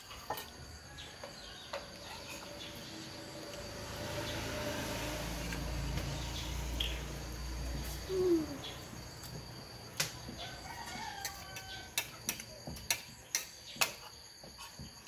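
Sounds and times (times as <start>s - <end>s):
rooster crowing: 10.3s - 12.2s.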